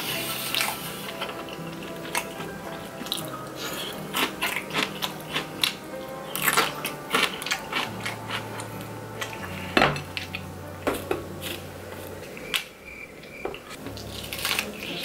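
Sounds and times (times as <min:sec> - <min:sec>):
pizza crust being torn apart: 0:13.9 - 0:15.0.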